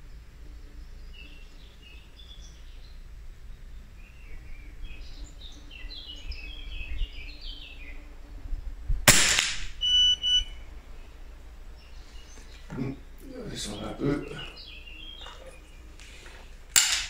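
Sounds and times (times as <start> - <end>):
small birds chirping: 0.0 - 17.0
suppressed rifle shot: 9.1 - 9.8
high electronic beep: 9.8 - 10.5.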